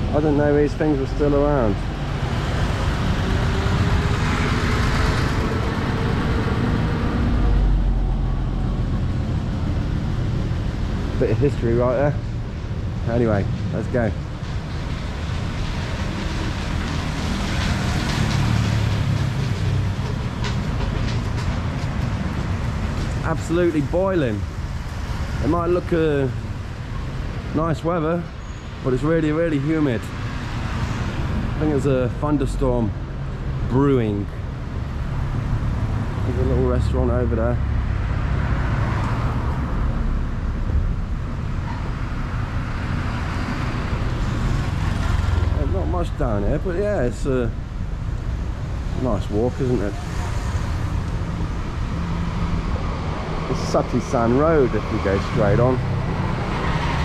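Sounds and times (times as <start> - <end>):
street traffic rumble: 0.0 - 57.0
heavy vehicle passing close: 48.5 - 57.0.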